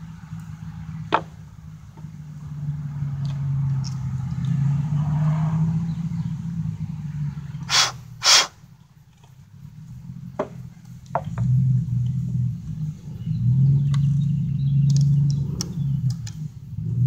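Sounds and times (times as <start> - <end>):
vehicle engine running: 0.0 - 17.0
short loud noises: 7.7 - 8.6
click: 14.8 - 16.4.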